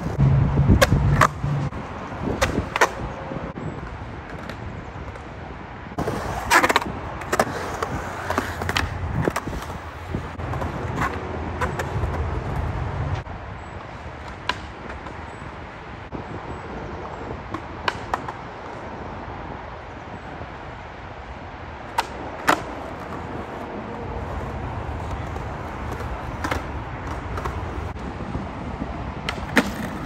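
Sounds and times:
skateboard rolling on concrete: 0:00.0 - 0:15.8, 0:16.4 - 0:20.7, 0:21.4 - 0:30.0
freeway traffic noise: 0:00.0 - 0:30.0
wind: 0:00.0 - 0:30.0
skateboard clacks popping and landing: 0:00.8 - 0:01.4, 0:02.2 - 0:03.0, 0:06.0 - 0:09.8, 0:21.9 - 0:27.9, 0:29.2 - 0:30.0.

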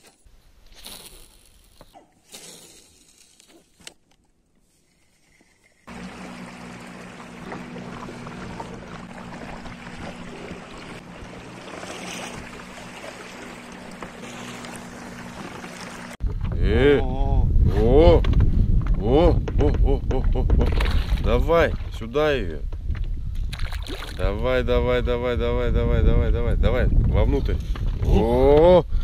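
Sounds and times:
boat motor humming: 0:05.8 - 0:21.4
water washing along hull: 0:05.9 - 0:16.8.

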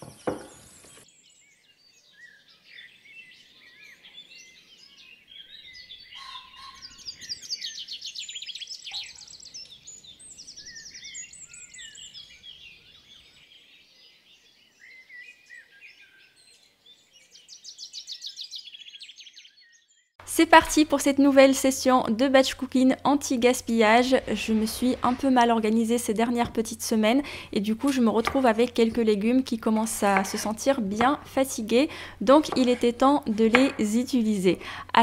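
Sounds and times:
songbirds chirping and trilling: 0:00.0 - 0:20.2.

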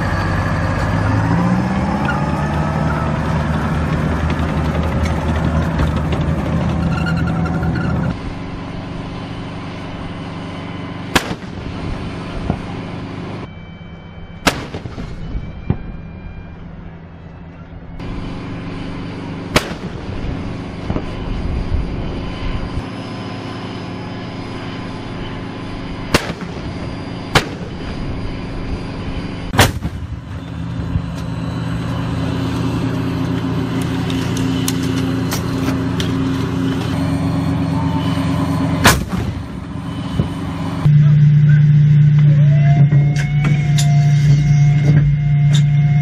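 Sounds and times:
diesel engine running: 0:00.0 - 0:46.0
cannon fire bangs: 0:11.1 - 0:11.6, 0:14.4 - 0:16.0, 0:19.5 - 0:20.2, 0:26.1 - 0:27.9, 0:29.5 - 0:30.3, 0:38.8 - 0:39.5.

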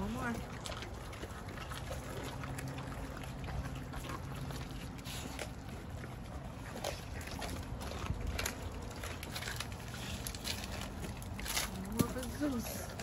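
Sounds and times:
dogs chewing raw meat and bone: 0:00.0 - 0:13.0
teeth crunching on bone: 0:03.4 - 0:13.0.

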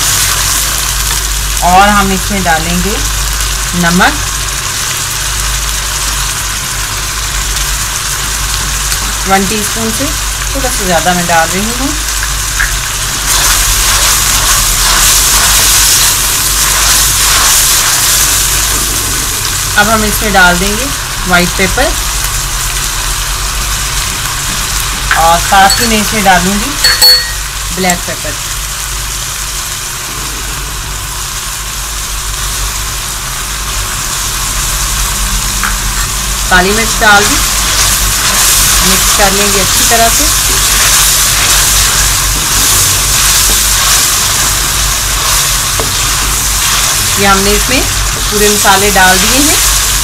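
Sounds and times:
paste sizzling in hot oil: 0:00.0 - 0:50.0
low hum: 0:29.5 - 0:50.0.

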